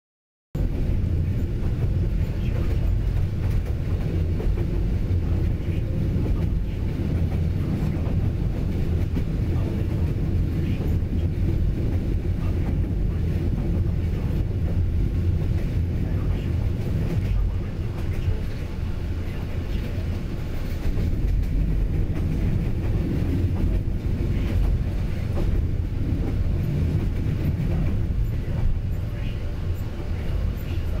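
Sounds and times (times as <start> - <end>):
train wheels rumbling on track: 0.6 - 31.0.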